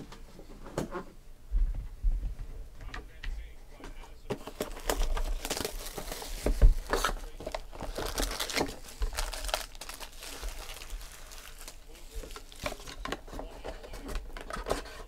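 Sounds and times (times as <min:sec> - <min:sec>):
foil packs crinkling: 0:04.4 - 0:15.0.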